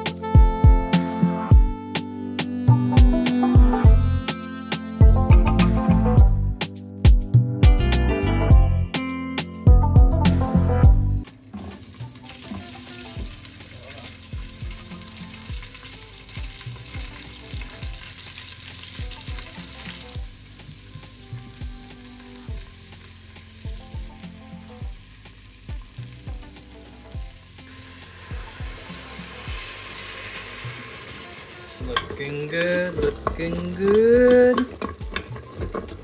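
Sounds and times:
soft music with steady beat: 0.0 - 36.0
vegetables sizzling while stirred: 11.2 - 36.0.

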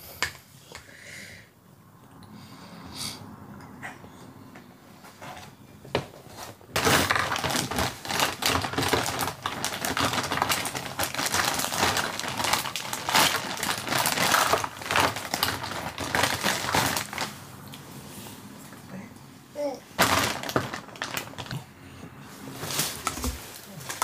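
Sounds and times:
crinkling and rustling: 5.0 - 17.4, 20.0 - 21.7, 22.3 - 24.0.

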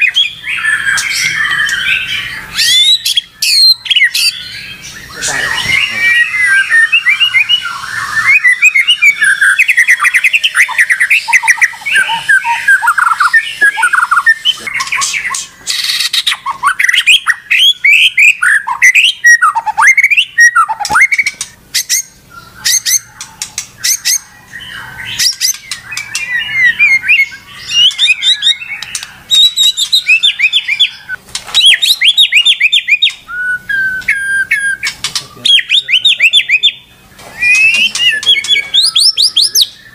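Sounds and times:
sharp clicking bird notes: 0.0 - 4.3, 5.1 - 24.3, 25.1 - 39.9
bird singing chirps and whistles: 0.0 - 39.9.

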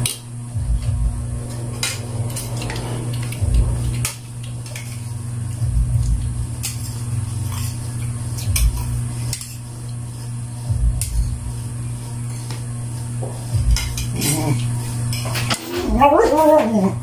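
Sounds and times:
steady low hum: 0.0 - 17.0
dull low thumps: 0.5 - 4.1, 5.2 - 6.6, 10.7 - 11.8.

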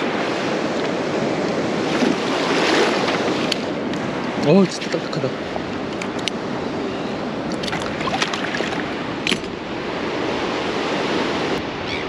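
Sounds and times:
surf breaking on beach: 0.0 - 5.9
wind: 0.0 - 12.0.

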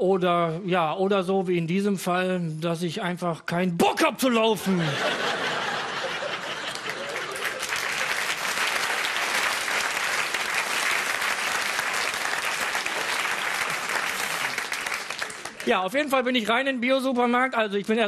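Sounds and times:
audience applauding: 5.2 - 15.8.

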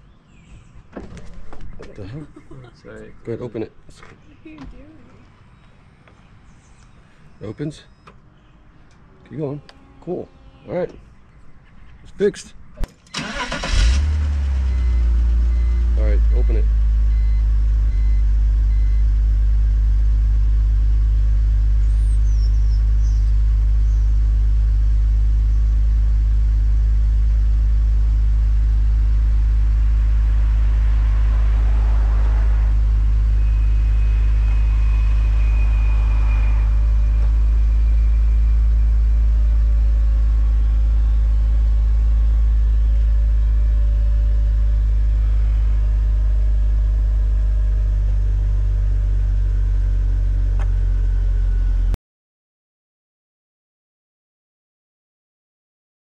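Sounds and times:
car engine idling: 12.7 - 51.9
faint wavering whine: 22.8 - 49.2.

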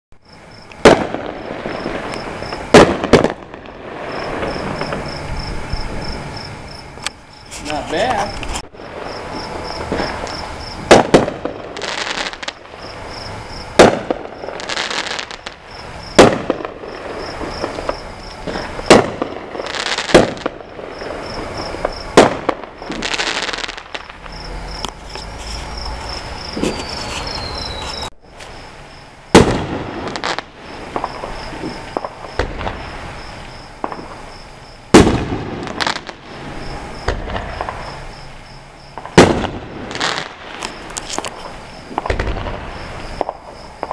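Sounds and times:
crickets chirping: 0.2 - 43.9
fireworks hissing: 0.2 - 43.9
fireworks banging: 0.4 - 43.9.

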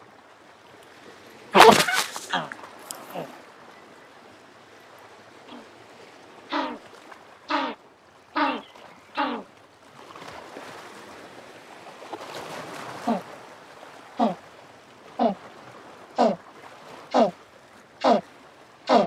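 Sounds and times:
penguin honking: 1.6 - 2.5, 17.1 - 17.4.

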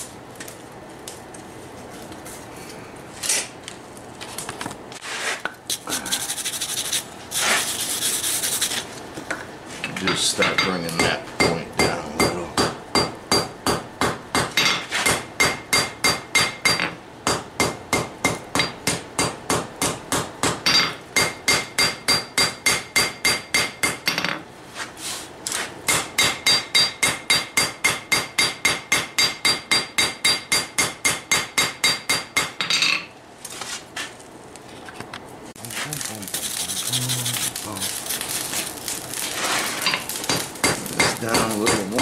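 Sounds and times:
hammer on hot steel anvil: 10.0 - 24.4, 25.9 - 33.1, 39.9 - 42.0.

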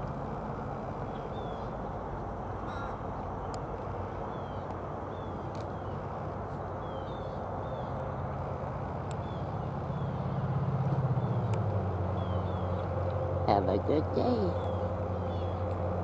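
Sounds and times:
steady background noise: 0.0 - 16.0
crows cawing: 2.6 - 3.1.

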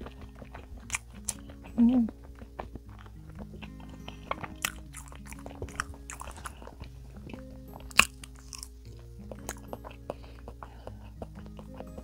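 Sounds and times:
chewing and wet mouth clicks: 0.0 - 12.0
soft background music: 0.0 - 12.0.

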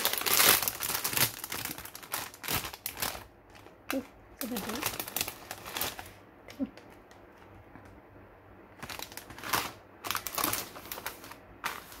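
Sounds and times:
chip bag crinkling: 0.0 - 6.2, 8.8 - 12.0.

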